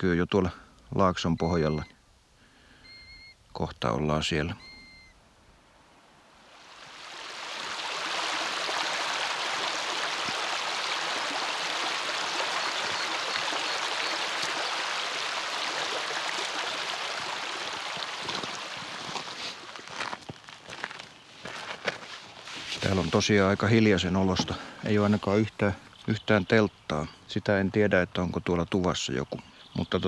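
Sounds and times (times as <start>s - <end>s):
stream splashing over stones: 6.5s - 20.9s.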